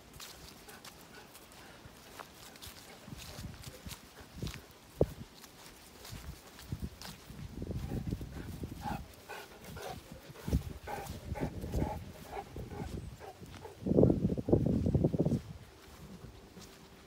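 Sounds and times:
steps through grass: 0.0 - 17.0
dog breathing heavily and snuffling: 7.7 - 13.9.

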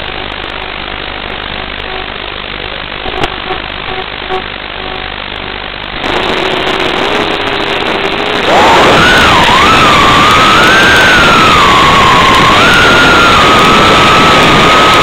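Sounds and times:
quadcopter motors humming: 6.0 - 15.0.

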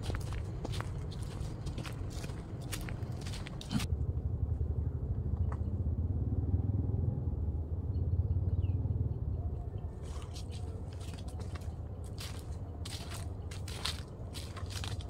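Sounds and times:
footsteps on dry leaves: 0.0 - 3.9, 10.0 - 15.0
passing vehicle engine rumble: 0.0 - 15.0.

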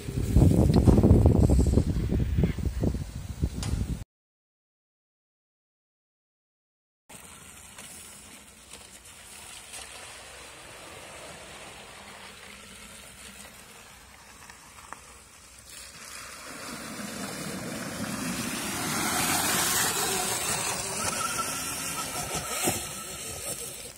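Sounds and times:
electric dirt bike riding: 0.0 - 3.4, 7.1 - 23.9
tyres through muddy water: 7.1 - 23.9.

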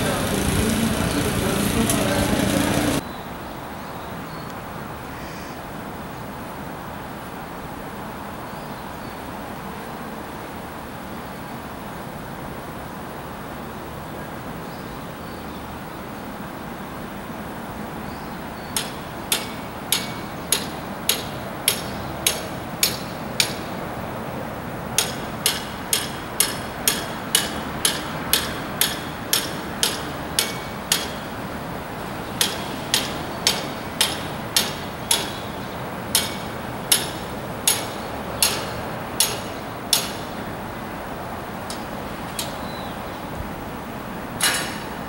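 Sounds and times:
hammer blows on metal wagons: 18.8 - 23.9, 25.0 - 40.4, 41.7 - 42.9, 44.4 - 45.0.

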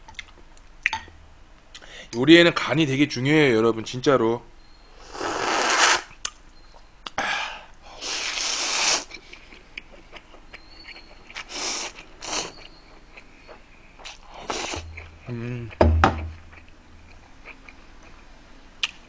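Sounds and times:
loud noodle slurps: 5.0 - 6.1, 8.0 - 9.1, 11.5 - 12.6.

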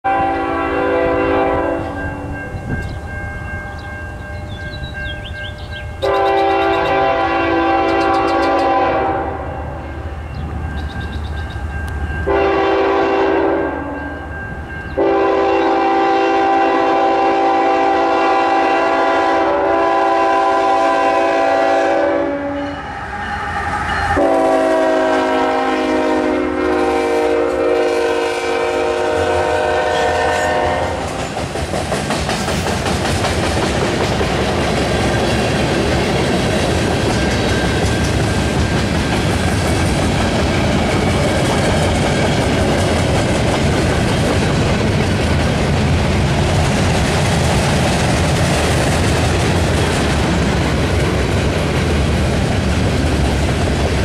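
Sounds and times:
train air horn blasts: 0.0 - 2.4, 6.0 - 10.2, 12.2 - 14.2, 15.0 - 31.4
train wheels clattering over rail joints: 31.0 - 54.0.

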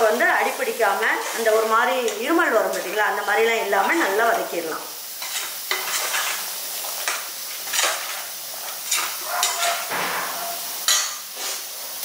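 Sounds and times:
food sizzling: 0.0 - 12.0
metal spoon scraping a pot: 5.2 - 6.4, 7.0 - 11.2
spoon knocking against pot: 9.3 - 11.2.

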